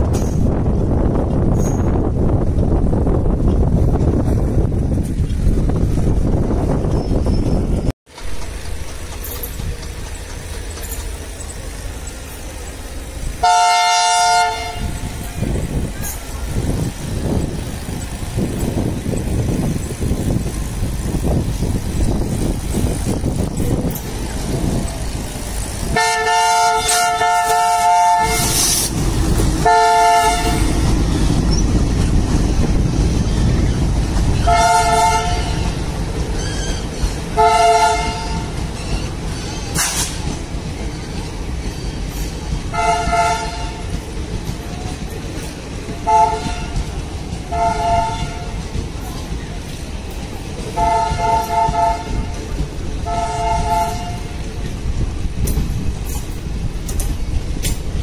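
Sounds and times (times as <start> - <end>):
diesel locomotive engine rumbling: 0.0 - 58.0
locomotive multi-tone horn: 13.4 - 15.6, 25.8 - 28.9, 29.6 - 30.9, 34.4 - 38.6, 42.7 - 44.0, 46.0 - 48.8, 50.7 - 54.5.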